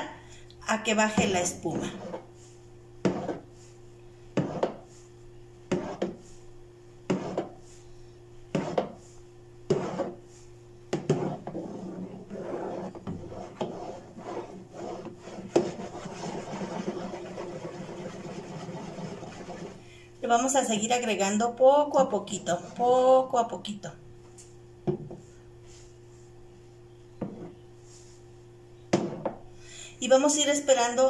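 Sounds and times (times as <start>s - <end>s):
metal spoon scraping plastic bowl: 9.7s - 10.2s, 11.0s - 19.8s.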